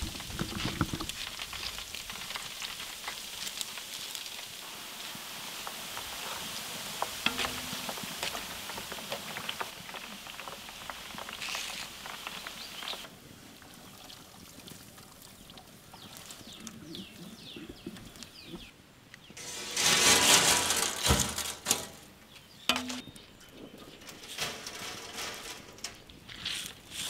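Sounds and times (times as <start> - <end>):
deep-frying sizzle and crackling: 0.0 - 14.7
birds chirping: 15.9 - 19.4.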